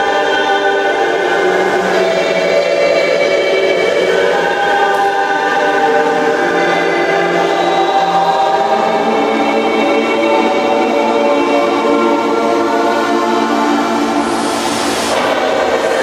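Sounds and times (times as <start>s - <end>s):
choir singing sustained chords: 0.0s - 16.0s.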